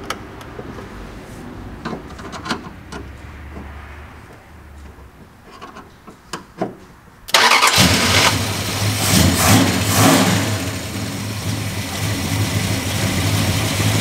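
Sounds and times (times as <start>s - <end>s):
car engine starting and idling: 7.2s - 14.0s.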